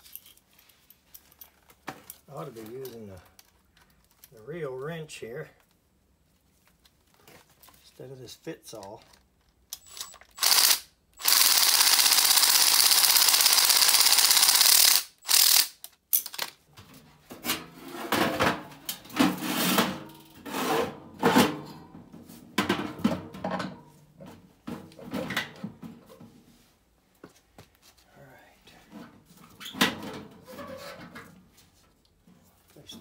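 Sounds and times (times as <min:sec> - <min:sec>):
cordless drill running: 0:09.8 - 0:15.8
metal clunks and scrapes: 0:16.8 - 0:26.5, 0:28.8 - 0:33.0.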